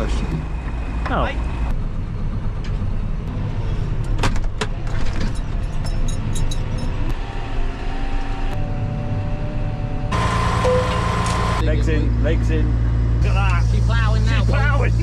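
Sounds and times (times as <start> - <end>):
diesel engine running under load: 8.6 - 15.0.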